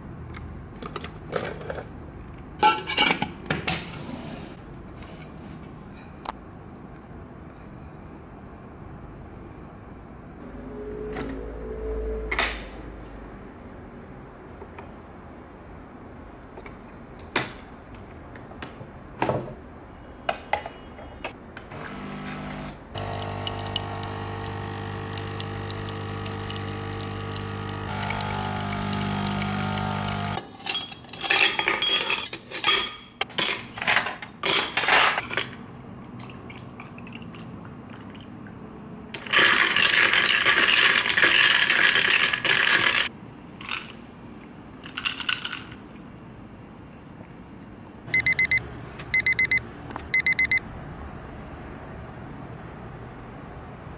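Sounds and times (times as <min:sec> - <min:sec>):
coffee machine pump humming: 0:21.7 - 0:30.4.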